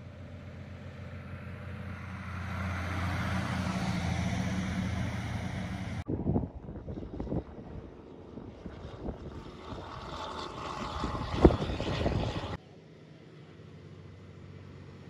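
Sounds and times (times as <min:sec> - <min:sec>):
truck engine hum: 0:00.0 - 0:06.1
truck passing by: 0:00.0 - 0:06.1.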